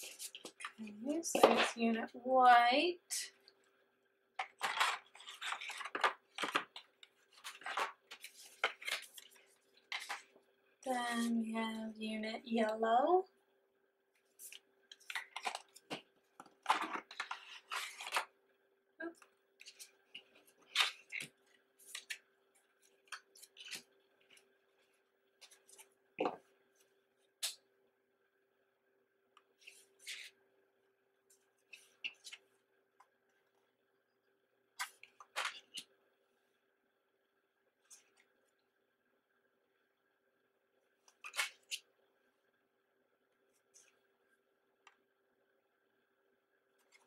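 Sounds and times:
photo cards and paper rustling: 0:00.0 - 0:02.0, 0:04.4 - 0:11.4, 0:14.2 - 0:18.4, 0:19.0 - 0:27.6, 0:29.5 - 0:30.4, 0:31.3 - 0:33.2, 0:34.8 - 0:35.9, 0:37.8 - 0:38.4, 0:41.0 - 0:41.9, 0:46.8 - 0:47.0
faint steady hum: 0:00.0 - 0:47.0.

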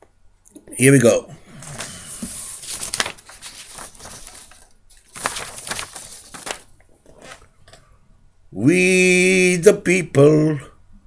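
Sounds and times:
rustling and scraping handling noise: 0:01.4 - 0:07.9.

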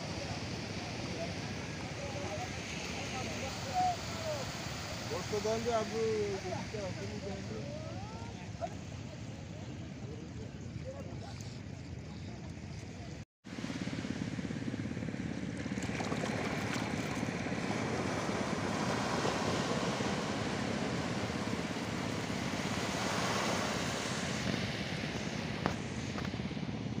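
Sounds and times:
sea waves washing on beach: 0:00.0 - 0:08.9, 0:15.0 - 0:26.6.

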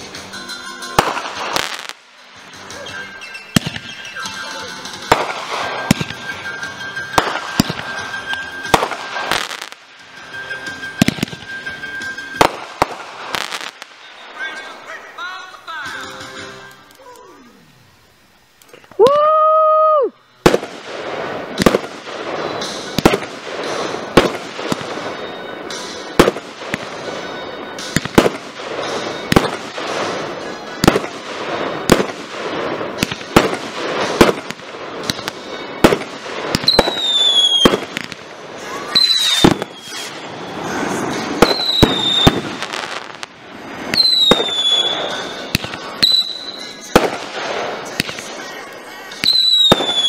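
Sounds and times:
whistling fireworks: 0:00.0 - 0:15.5, 0:16.2 - 0:50.0
fireworks bangs and crackles: 0:00.0 - 0:16.5, 0:20.4 - 0:50.0
loud steady tone: 0:02.7 - 0:12.7, 0:26.8 - 0:28.0.

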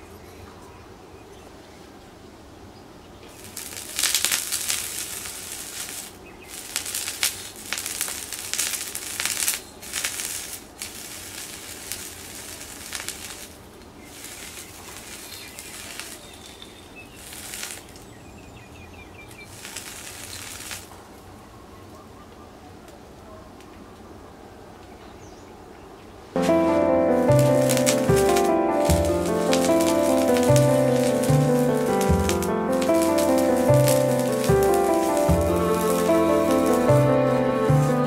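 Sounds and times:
sausage sizzling on hot metal: 0:03.3 - 0:17.9, 0:19.4 - 0:20.9, 0:26.4 - 0:38.0.

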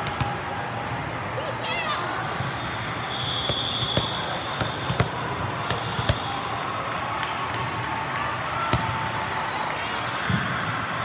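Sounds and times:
volleyballs thudding and slapping: 0:00.0 - 0:00.5, 0:03.4 - 0:06.3
sports hall din: 0:00.0 - 0:11.0
high whistle: 0:02.4 - 0:05.0.

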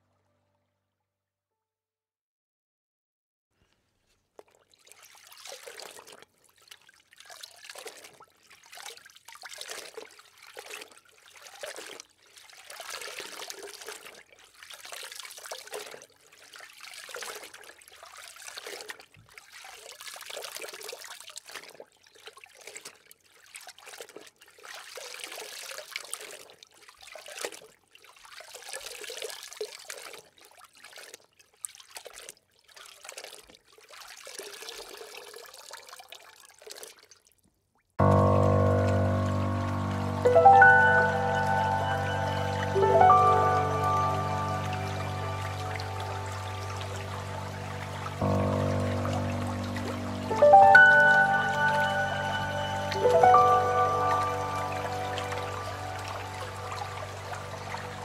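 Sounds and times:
water rushing underwater: 0:38.0 - 0:58.0.

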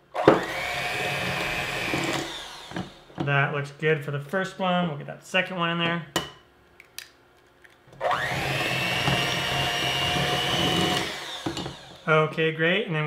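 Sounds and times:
electric hand mixer whining: 0:00.2 - 0:03.1, 0:08.0 - 0:12.1.

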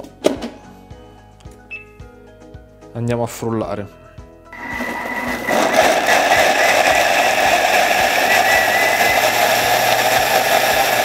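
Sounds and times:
blender motor whir: 0:04.6 - 0:11.0.

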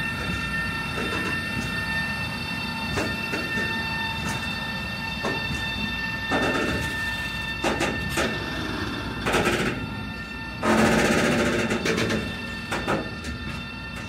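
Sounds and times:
train wheels clattering over rails: 0:02.8 - 0:10.0, 0:10.6 - 0:14.0.

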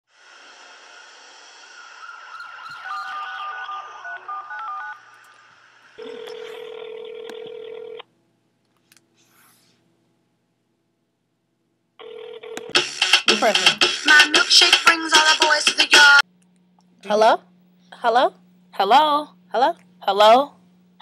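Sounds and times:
phone ringback tone: 0:06.0 - 0:08.0, 0:12.0 - 0:13.2.

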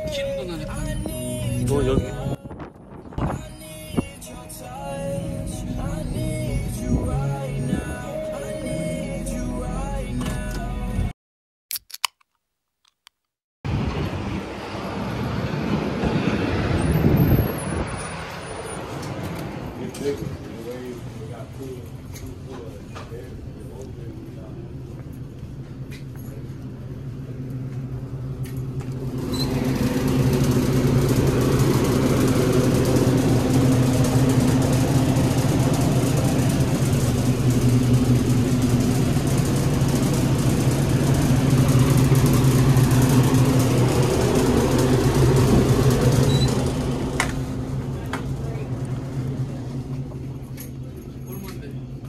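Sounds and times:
refrigeration fans humming: 0:20.7 - 0:52.0.

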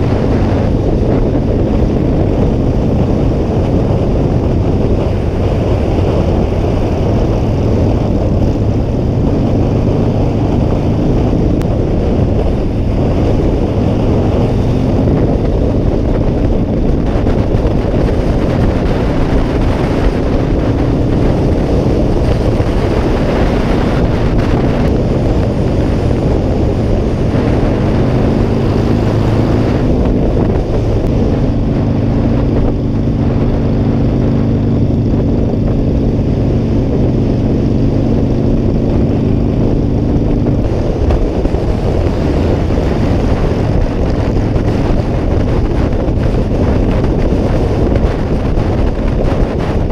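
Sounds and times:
motorcycle engine cruising: 0:00.0 - 0:49.9
wind on microphone: 0:00.0 - 0:49.9.

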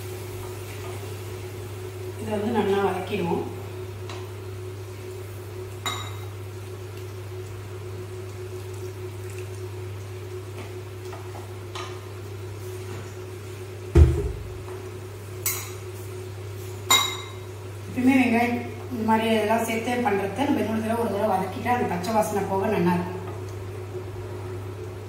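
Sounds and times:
heavy thump: 0:14.0 - 0:14.5.

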